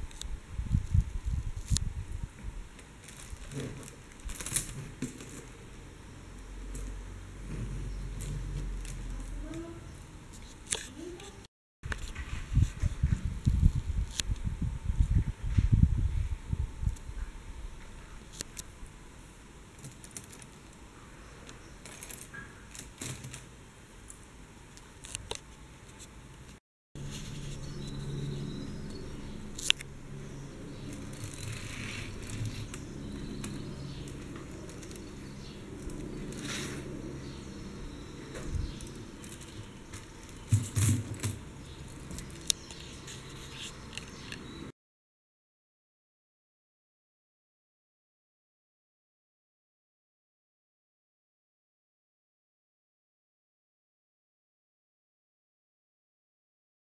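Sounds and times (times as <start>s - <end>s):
steady low hiss: 0.0s - 44.7s
beaded handbag clicks and rustles: 3.0s - 5.6s, 21.8s - 23.4s, 30.9s - 36.5s, 38.7s - 44.2s.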